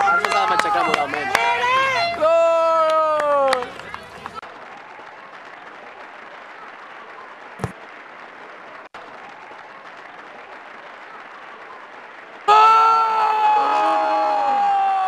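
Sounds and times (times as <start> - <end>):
spectator shouting: 0.0 - 3.8, 12.5 - 15.0
spectators background noise: 0.0 - 15.0.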